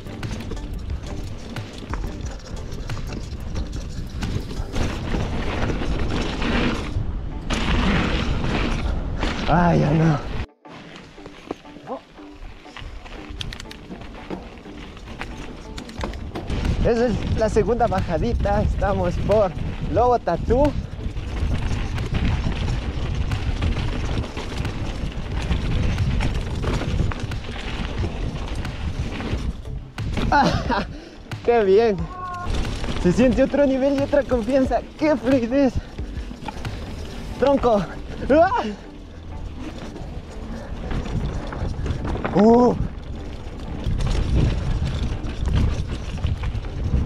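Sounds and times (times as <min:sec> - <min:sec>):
bike clicking and rattling: 0:00.0 - 0:47.0
tyre noise on dirt: 0:00.0 - 0:47.0
wind buffeting microphone: 0:16.2 - 0:38.3, 0:40.0 - 0:47.0.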